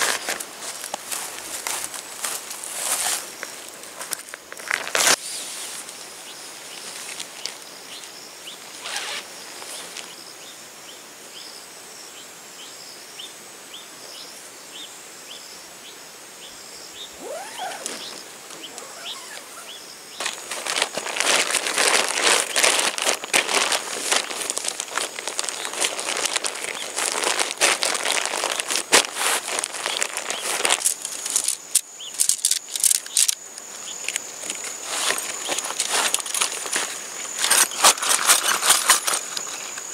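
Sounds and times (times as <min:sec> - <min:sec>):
tent fabric rustling: 0:00.0 - 0:03.4, 0:08.7 - 0:10.0, 0:17.0 - 0:31.6, 0:34.4 - 0:39.9
quiet outdoor ambience: 0:00.0 - 0:39.9.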